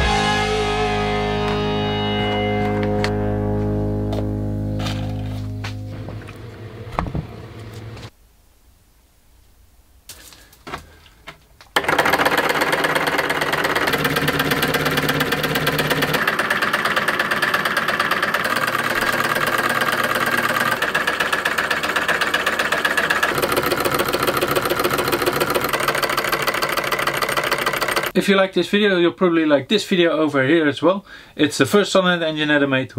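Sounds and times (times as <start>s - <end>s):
solenoid engine clatter: 11.8s - 28.2s.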